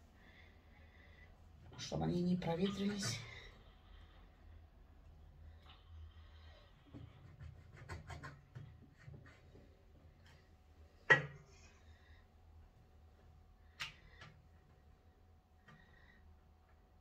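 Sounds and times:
light scratches and taps: 0:06.8 - 0:10.5.

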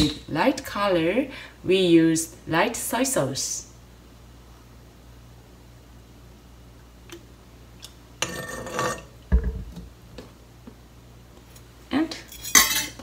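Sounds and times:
utensils clattering: 0:12.3 - 0:13.0.

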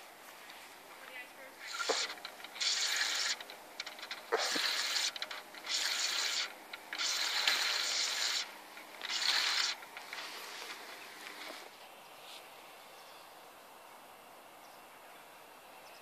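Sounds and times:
fishing reel whirring: 0:01.6 - 0:10.7.

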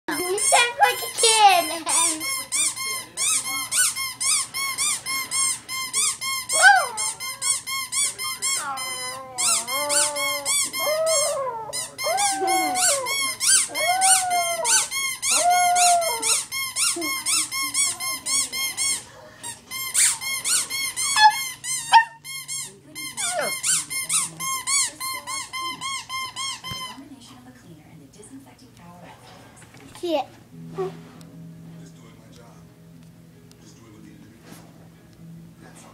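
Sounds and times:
puppy howling: 0:06.5 - 0:07.2, 0:08.5 - 0:16.5, 0:23.2 - 0:23.6.

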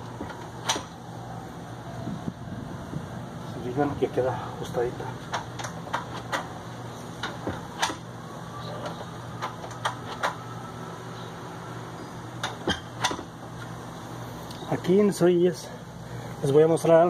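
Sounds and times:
metal door latch clicking: 0:00.2 - 0:01.0, 0:07.2 - 0:08.1, 0:08.8 - 0:10.4, 0:12.4 - 0:13.3.

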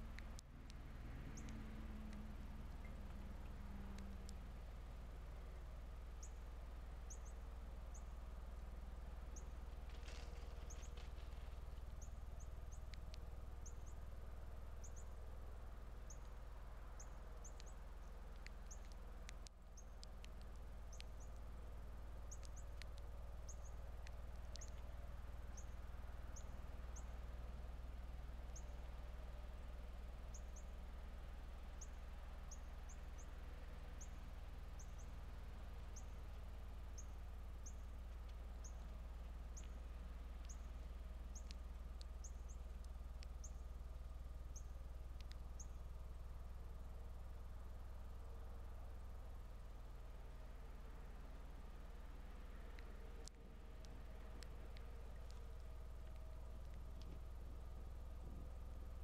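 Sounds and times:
songbird chip calls: 0:00.0 - 0:08.2, 0:09.2 - 0:14.1, 0:14.7 - 0:15.3, 0:16.0 - 0:21.5, 0:22.2 - 0:27.4, 0:34.0 - 0:43.8, 0:44.5 - 0:45.9
steady low hum: 0:00.0 - 0:59.0.

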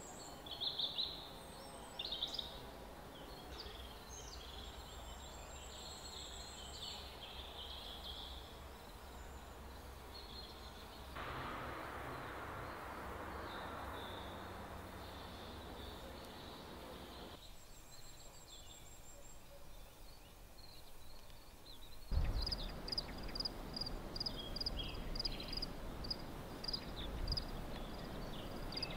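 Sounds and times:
faint ambient hiss: 0:00.0 - 0:28.9
small birds chirping: 0:00.0 - 0:28.9
loud steady rushing noise: 0:11.2 - 0:17.4, 0:22.2 - 0:28.9.

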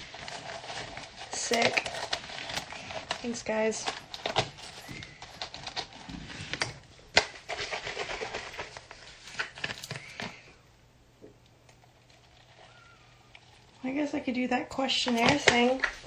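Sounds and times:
close rustling: 0:00.0 - 0:10.4.

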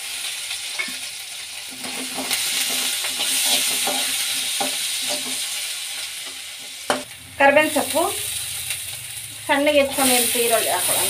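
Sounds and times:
food sizzling in hot oil: 0:00.0 - 0:11.0
spatula scraping pan: 0:01.7 - 0:05.5.

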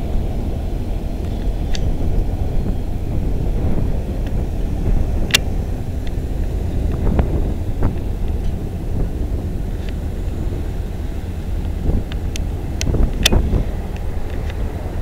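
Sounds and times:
wind buffeting microphone: 0:00.0 - 0:15.0
sharp clicks: 0:11.6 - 0:14.6.

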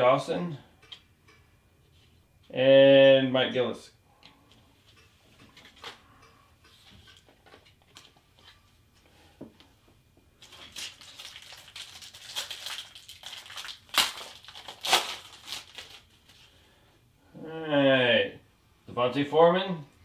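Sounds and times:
wrapper crinkling and tearing: 0:10.4 - 0:16.5.

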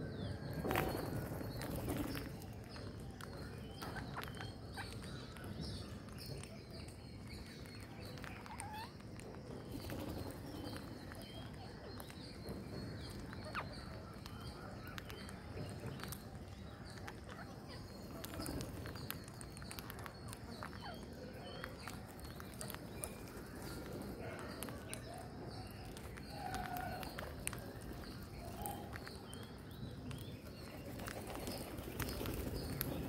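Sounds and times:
low background noise: 0:00.0 - 0:33.0
parakeets chirping: 0:07.6 - 0:33.0
beaks clicking on concrete: 0:13.0 - 0:33.0.

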